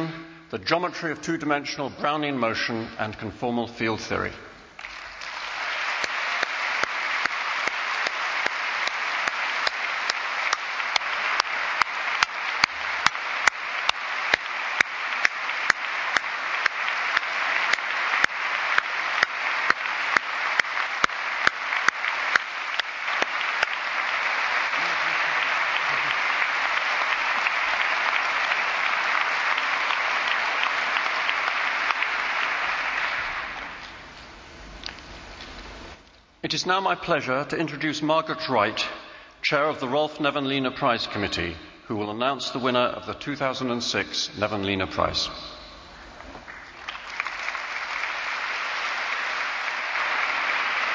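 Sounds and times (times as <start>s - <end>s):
audience applauding: 4.8s - 35.8s, 45.0s - 50.9s.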